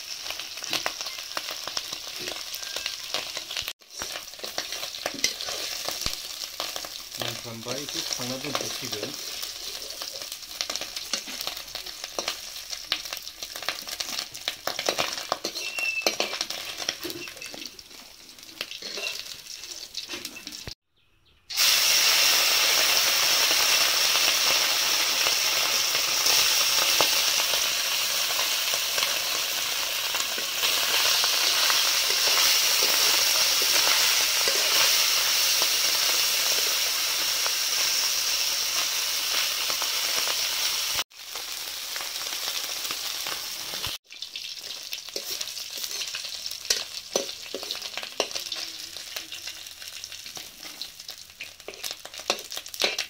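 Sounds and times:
fish sizzling in oil: 0.0s - 20.8s, 21.5s - 53.0s
metal spatula scraping pan: 14.7s - 17.7s, 18.7s - 19.4s, 45.1s - 48.7s.

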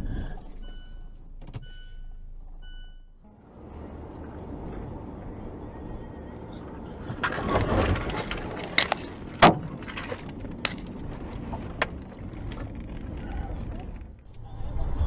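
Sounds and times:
road noise: 0.0s - 15.0s
car crash crunching rush: 7.1s - 15.0s.

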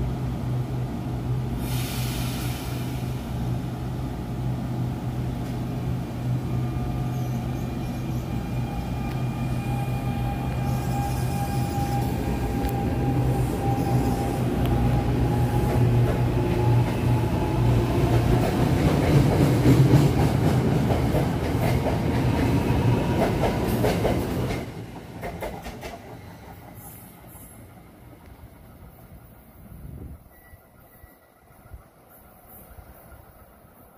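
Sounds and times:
electric train hum: 0.0s - 33.9s
train wheels clicking over rail joints: 18.0s - 28.3s.

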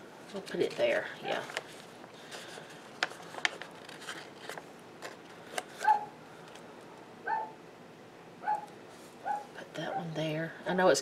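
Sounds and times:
paper and sticker sheets rustling: 0.3s - 6.0s
dog barking: 5.8s - 6.1s, 7.3s - 7.6s, 8.4s - 10.0s.

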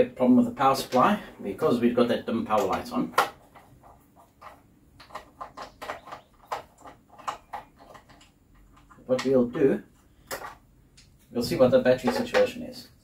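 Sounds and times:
hands handling plastic housing: 2.5s - 12.6s.

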